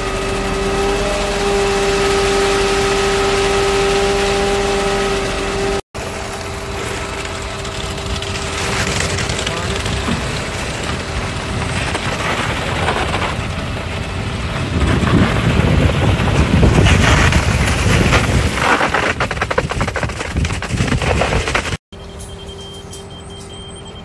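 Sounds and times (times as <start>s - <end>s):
concrete pump running: 0.0s - 24.0s
wet concrete gushing from hose: 6.0s - 21.8s.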